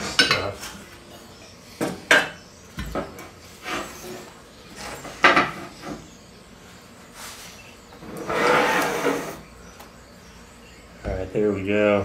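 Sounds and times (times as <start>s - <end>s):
metal scraping: 8.0s - 9.5s.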